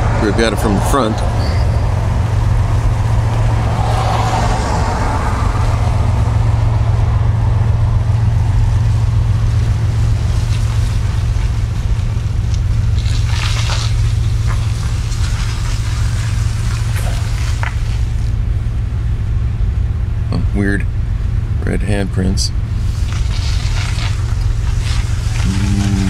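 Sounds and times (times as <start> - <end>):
steady low rumble: 0.0 - 26.0.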